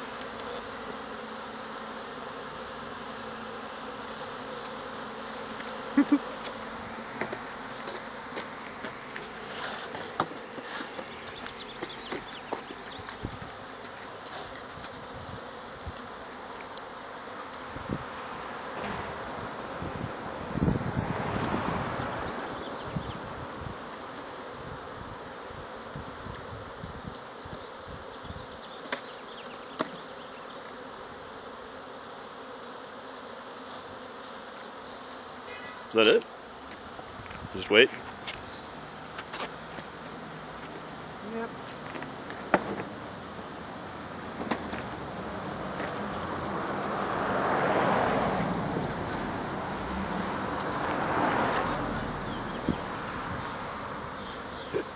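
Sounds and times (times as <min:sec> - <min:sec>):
bees buzzing: 0:00.0 - 0:54.9.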